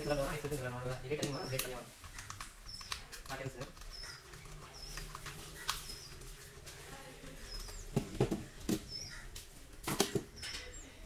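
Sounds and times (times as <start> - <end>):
wires and plastic parts clicking: 0.4 - 10.8
small bird chirping: 1.1 - 6.6, 7.2 - 9.3.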